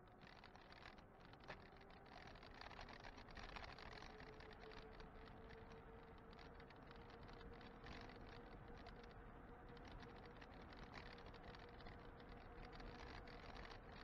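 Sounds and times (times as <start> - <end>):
rapid light clicking and rattling: 0.0 - 14.0.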